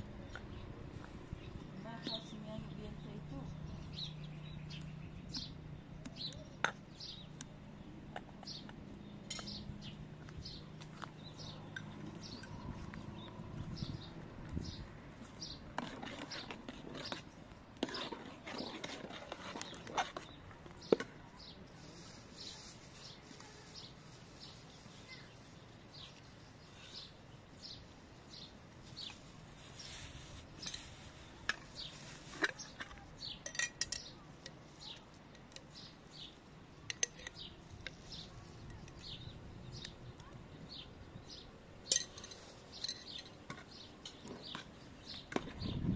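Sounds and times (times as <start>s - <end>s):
birds chirping: 0.0s - 45.9s
utensils clinking on metal pot: 32.3s - 34.6s, 36.8s - 37.5s, 41.9s - 44.7s.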